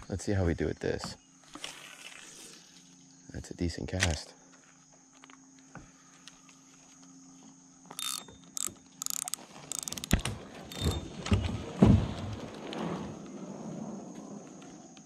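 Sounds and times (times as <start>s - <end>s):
fishing reel clicking: 7.9s - 11.0s.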